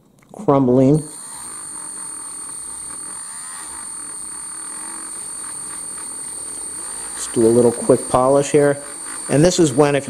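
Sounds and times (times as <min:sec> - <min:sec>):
rotary tool high-pitched whine: 0:00.6 - 0:10.0
felt buffing wheel rubbing metal: 0:01.0 - 0:10.0.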